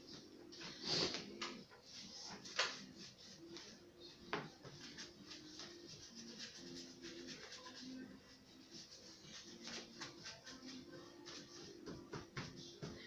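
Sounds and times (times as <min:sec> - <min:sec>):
paintbrush scratching on twigs: 0:05.2 - 0:08.0.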